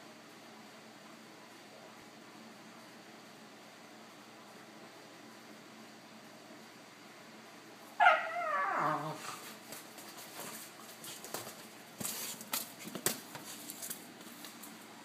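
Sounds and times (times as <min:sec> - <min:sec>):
dog crying: 0:08.0 - 0:09.4.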